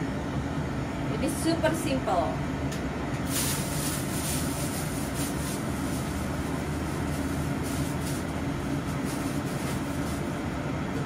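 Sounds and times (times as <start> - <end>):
frying pan hissing: 3.3 - 9.9.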